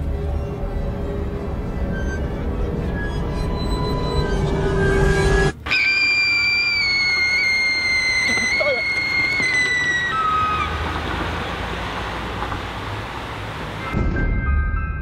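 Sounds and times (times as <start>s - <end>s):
high steady whistle-like tone: 0.2s - 10.7s.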